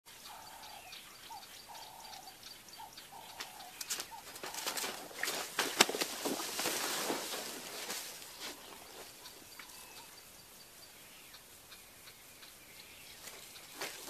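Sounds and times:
dove cooing: 0.3 - 7.9
brush cracking and rustling: 3.2 - 9.7, 12.7 - 14.0.

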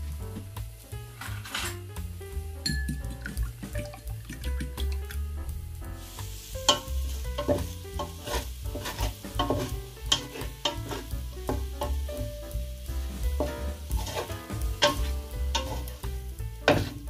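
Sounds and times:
food sizzling: 0.0 - 17.0
spatula scraping frying pan: 1.2 - 1.8, 6.0 - 12.1, 13.0 - 17.0.

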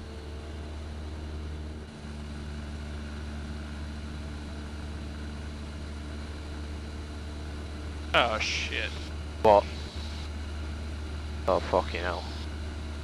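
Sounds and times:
airplane engine droning: 0.0 - 13.0.

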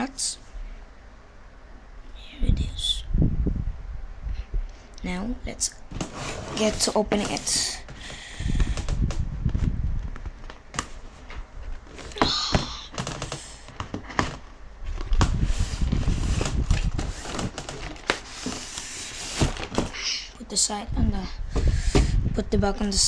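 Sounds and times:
cardboard sliding and rustling: 5.9 - 8.1, 13.0 - 20.1.

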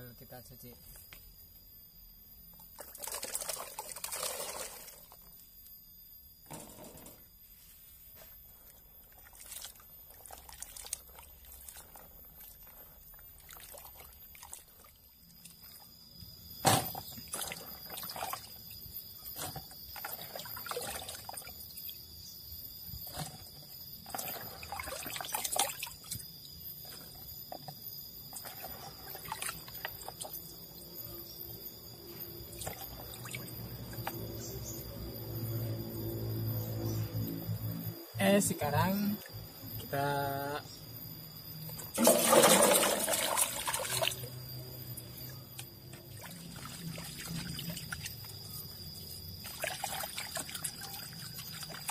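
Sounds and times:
hands sloshing water in a basin: 2.6 - 5.4, 8.4 - 15.9, 16.8 - 22.0, 23.0 - 30.6, 32.2 - 34.4, 41.8 - 51.9.

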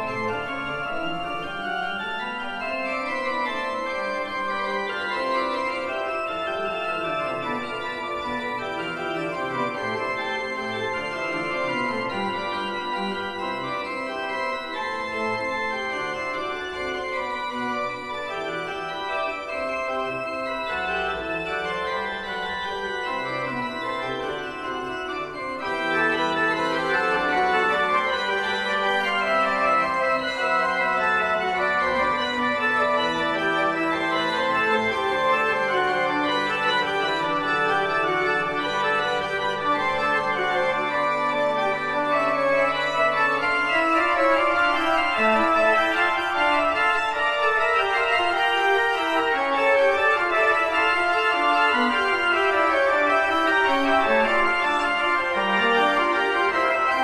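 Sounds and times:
pipe organ playing: 0.0 - 57.0.

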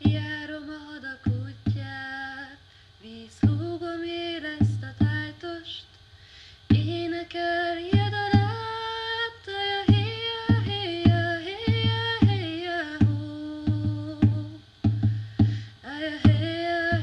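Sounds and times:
woman singing long held notes: 0.0 - 5.9, 6.7 - 17.0
low drum beats: 3.4 - 3.8, 7.8 - 8.7, 9.8 - 17.0.

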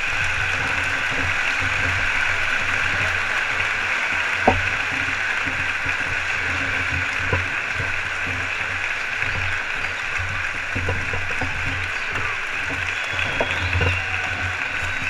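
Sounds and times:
indoor crowd noise: 0.0 - 15.0.

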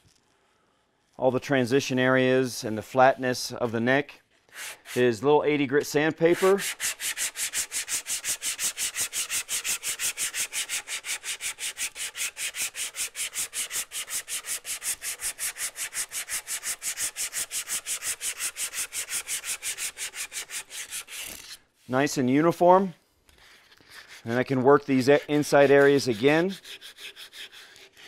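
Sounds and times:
sandpaper sanding wood: 4.5 - 5.2, 6.2 - 21.6, 23.4 - 28.0.

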